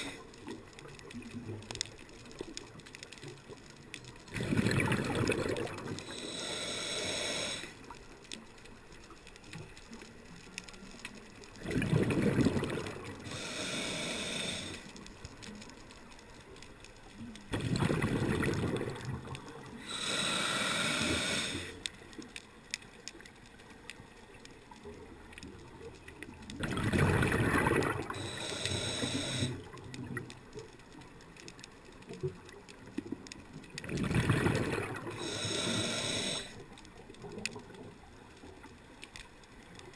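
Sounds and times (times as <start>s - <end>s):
regulator inhale hiss: 0.0s - 0.6s, 5.8s - 8.1s, 13.1s - 15.6s, 19.7s - 22.0s, 28.0s - 29.8s, 35.0s - 36.8s
exhaled bubbles rushing: 4.3s - 6.0s, 11.6s - 13.2s, 17.5s - 19.4s, 26.6s - 28.2s, 33.8s - 35.2s.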